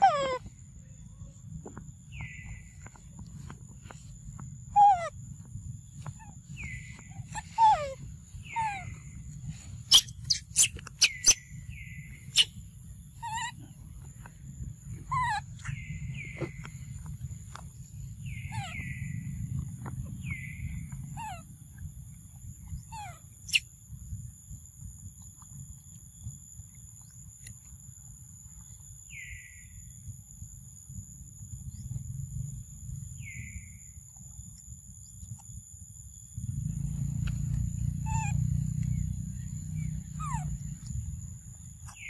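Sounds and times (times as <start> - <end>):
bird chirping: 0.0 - 21.4, 22.7 - 23.7, 28.8 - 30.0, 37.6 - 42.0
low rumble: 0.4 - 26.6.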